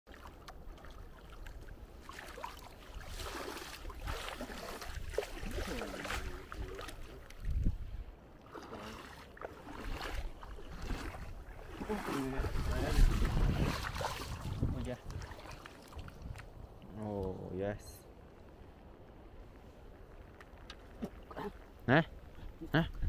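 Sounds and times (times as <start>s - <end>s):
feet sloshing through water: 0.1s - 16.8s
wind rumble on microphone: 2.8s - 8.2s, 9.7s - 17.6s, 22.0s - 23.0s.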